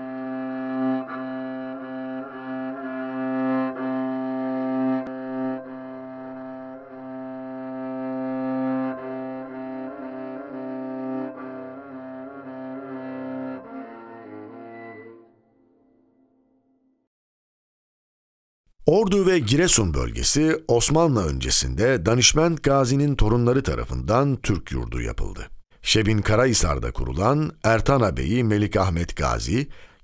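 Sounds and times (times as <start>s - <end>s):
slow instrumental music: 0.0s - 16.0s.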